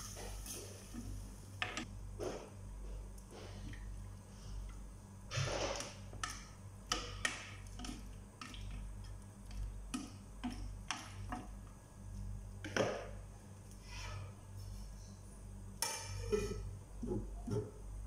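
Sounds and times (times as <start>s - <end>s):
low steady hum: 0.0s - 18.0s
spoon scraping metal pot: 15.9s - 17.6s.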